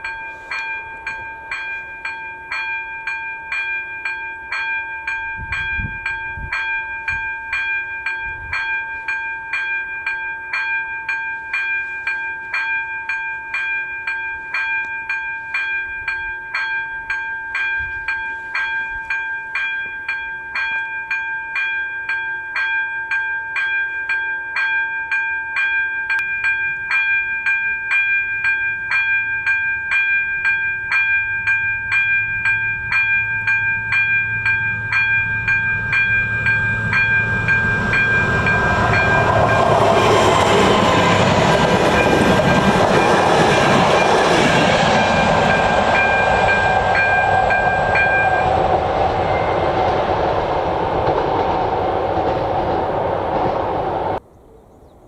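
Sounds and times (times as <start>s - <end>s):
level crossing warning bell dinging: 0.0s - 50.0s
diesel train rumbling past: 30.8s - 54.2s.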